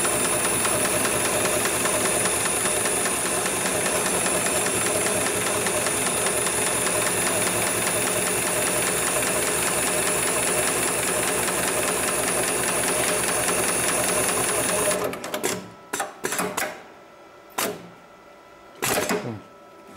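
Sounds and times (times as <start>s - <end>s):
sharp machine clacks: 0.0s - 16.5s
sewing machine stitching: 0.0s - 16.6s, 18.8s - 19.2s.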